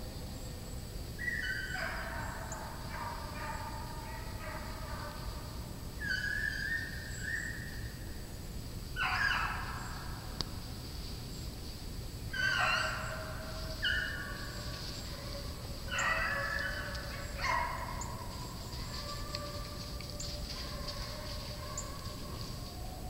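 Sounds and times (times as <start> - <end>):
hounds baying: 1.2 - 5.4, 9.0 - 10.2, 12.3 - 23.0.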